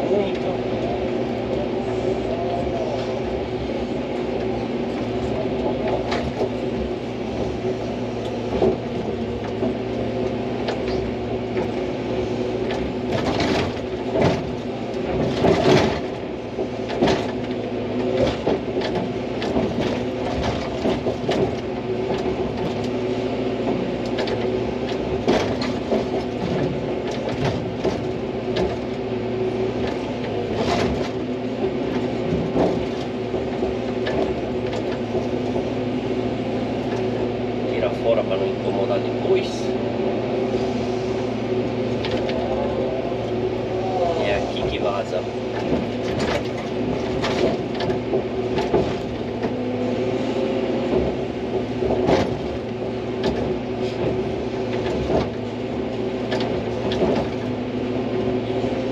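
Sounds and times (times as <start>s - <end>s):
excavator diesel engine running: 0.0s - 58.9s
excavator knocks and clanks: 0.0s - 58.9s.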